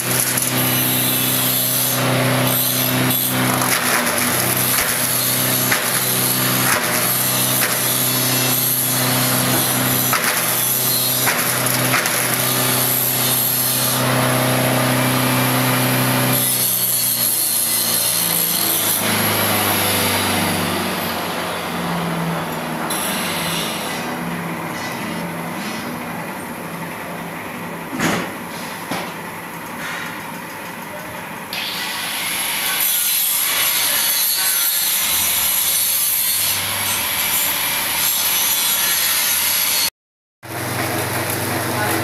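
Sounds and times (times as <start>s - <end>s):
shredder motor humming: 0.0s - 24.6s, 40.4s - 42.0s.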